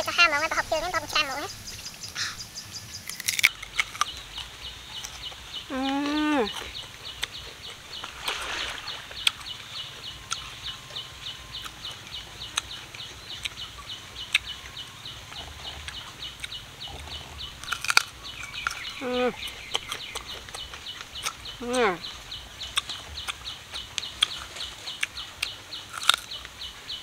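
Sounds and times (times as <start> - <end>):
chicken calling: 0.0 - 3.4
crunching and chewing mango: 1.1 - 27.0.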